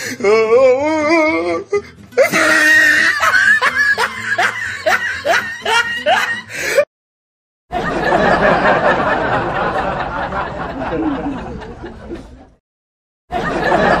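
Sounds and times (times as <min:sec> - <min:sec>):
loud laughter: 0:02.2 - 0:06.8, 0:07.7 - 0:12.5, 0:13.3 - 0:14.0.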